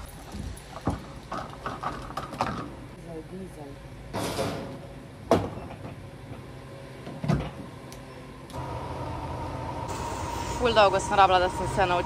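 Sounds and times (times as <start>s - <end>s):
fuel pump humming whine: 8.1s - 12.0s.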